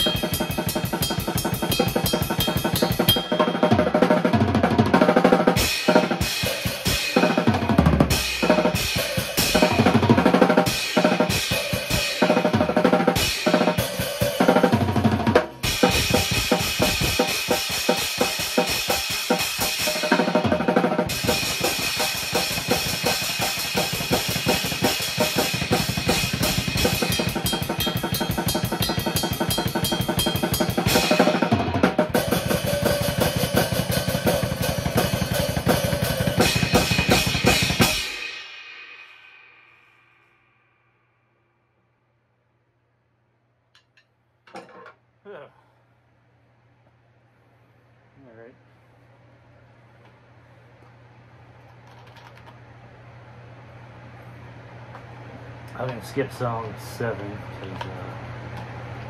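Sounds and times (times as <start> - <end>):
drum kit beat: 0.0 - 39.0.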